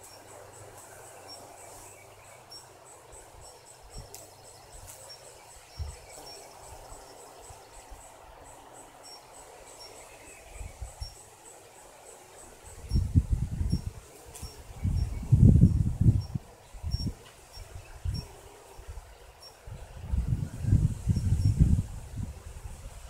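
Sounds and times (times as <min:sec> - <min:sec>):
faint outdoor hiss: 0:00.0 - 0:23.0
insect chirping: 0:00.0 - 0:23.0
wind bumps on microphone: 0:05.7 - 0:06.2, 0:12.7 - 0:23.0.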